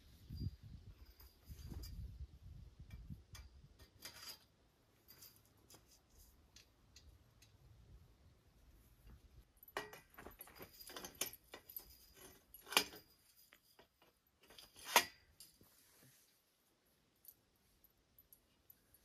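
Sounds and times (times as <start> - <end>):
metal poles clinking and rattling: 0.3 - 7.6, 9.0 - 15.7.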